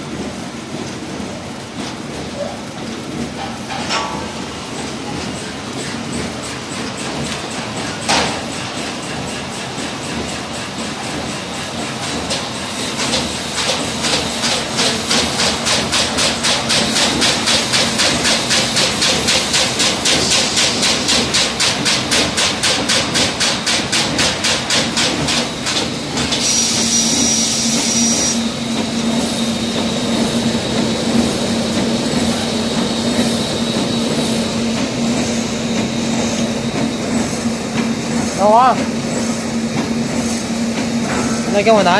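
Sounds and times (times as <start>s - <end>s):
steady machine hum: 0.0s - 41.9s
packing machine clatter: 0.1s - 26.6s
hiss with high whistle: 26.4s - 28.6s.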